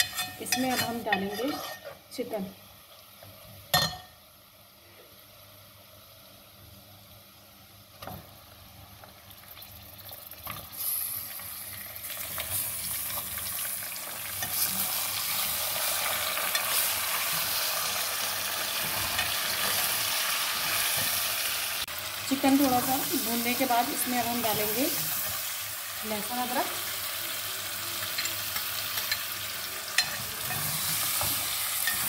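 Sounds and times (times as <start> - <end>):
ladle stirring in pot: 0.0 - 2.0
chicken sizzling in oil: 7.8 - 32.0.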